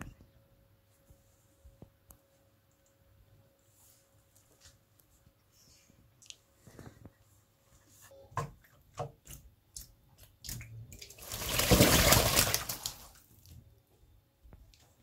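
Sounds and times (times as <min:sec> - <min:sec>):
pigeon splashing in water: 0:09.2 - 0:13.3.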